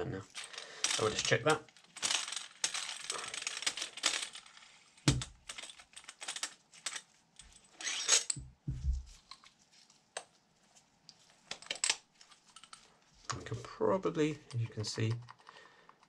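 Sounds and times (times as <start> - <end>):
metal tool parts clinking: 0.3 - 8.4
dull thumps: 8.4 - 9.2.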